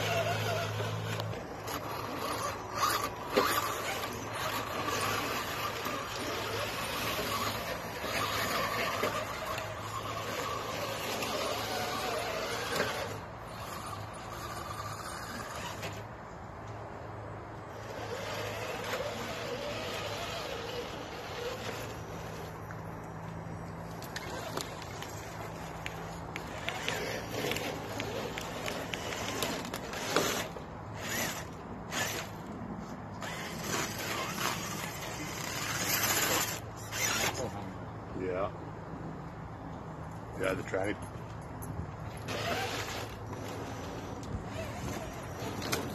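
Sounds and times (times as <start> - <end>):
electric motor and gears whining: 0.0 - 45.9.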